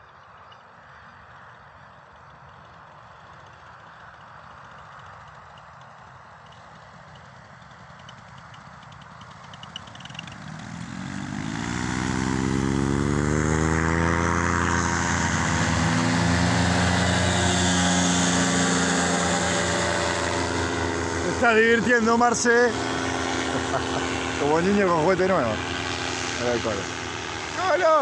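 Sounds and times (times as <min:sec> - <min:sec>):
paramotor engine and propeller: 0:00.0 - 0:28.0.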